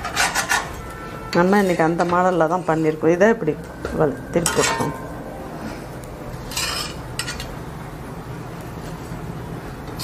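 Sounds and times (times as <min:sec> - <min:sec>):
spatula scraping frying pan: 0:00.0 - 0:03.2, 0:06.4 - 0:07.5
steady low hum: 0:00.8 - 0:10.0.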